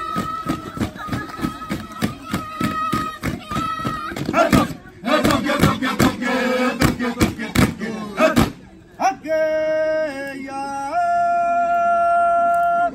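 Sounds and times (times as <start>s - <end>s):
fast sharp beats: 0.0s - 8.6s
group of voices chanting: 0.0s - 12.1s.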